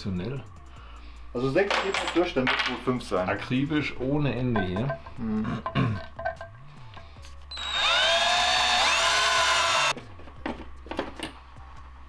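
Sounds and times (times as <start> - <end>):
cordless drill motor whine: 7.5 - 9.9.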